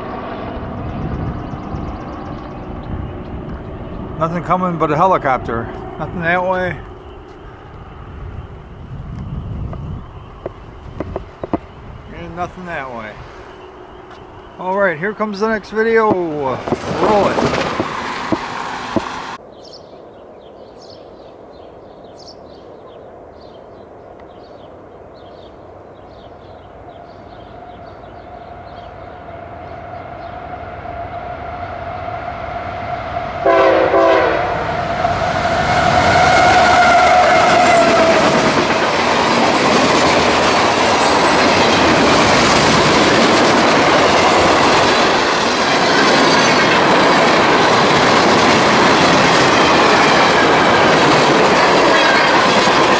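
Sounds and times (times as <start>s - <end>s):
diesel freight train passing: 0.0s - 19.5s, 20.1s - 52.9s
birds chirping: 0.2s - 31.2s
wheels clacking over rail joints: 10.4s - 12.7s, 13.5s - 19.4s, 34.7s - 52.9s
train horn blasts: 33.4s - 38.4s.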